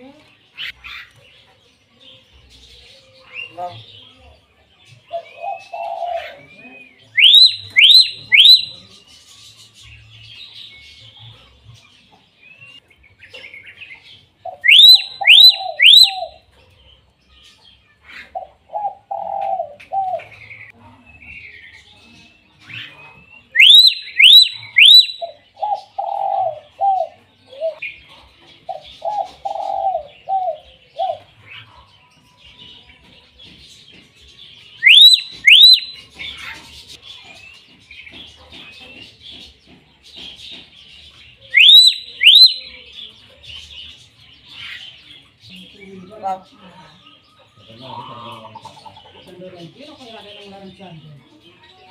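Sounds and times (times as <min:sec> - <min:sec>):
myna bird whistling calls: 0:05.2 - 0:09.0, 0:14.5 - 0:16.4, 0:22.7 - 0:27.8, 0:34.7 - 0:37.0, 0:41.4 - 0:43.1.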